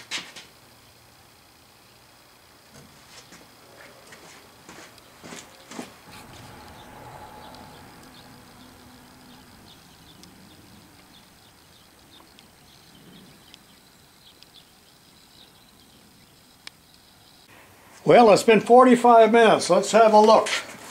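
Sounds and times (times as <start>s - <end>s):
cooling metal ticking and crackling: 4.9s - 17.5s.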